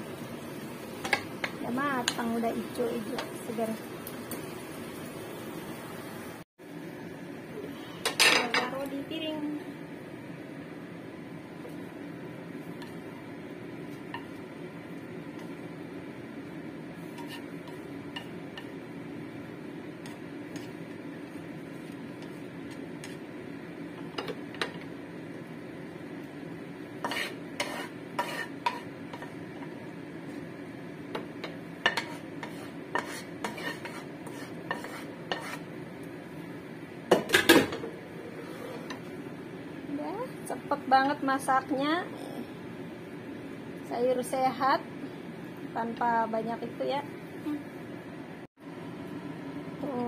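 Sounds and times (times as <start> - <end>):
utensils scraping a frying pan: 16.9 - 18.8, 27.0 - 29.4, 31.4 - 35.7, 38.2 - 39.0.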